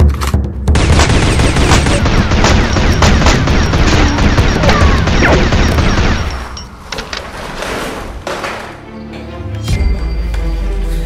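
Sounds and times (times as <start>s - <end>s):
rapid gunfire: 0.7s - 6.5s.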